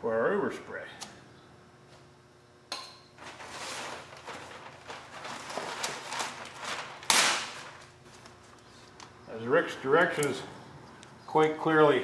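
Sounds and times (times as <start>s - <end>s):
paper ripping: 3.2s - 8.4s
paper rustling and crinkling: 3.2s - 9.0s.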